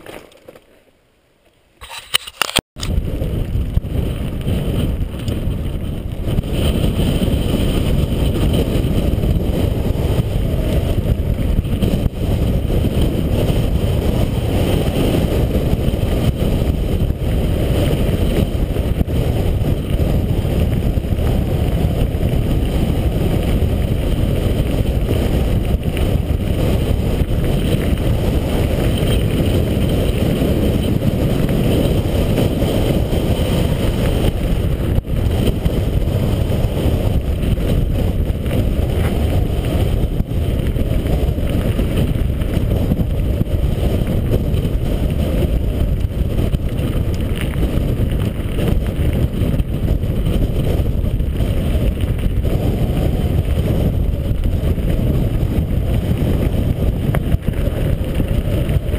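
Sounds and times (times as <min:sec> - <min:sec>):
bike tyres rolling on gravel: 0:00.0 - 0:01.0, 0:02.8 - 0:58.9
wind buffeting microphone: 0:02.8 - 0:58.9.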